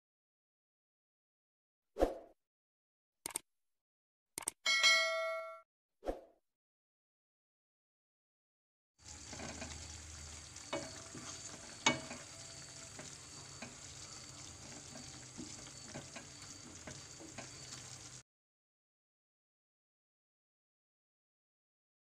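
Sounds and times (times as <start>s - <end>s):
curry sizzling in a frying pan: 9.0s - 18.2s
spatula clinking against pan: 10.6s - 17.7s.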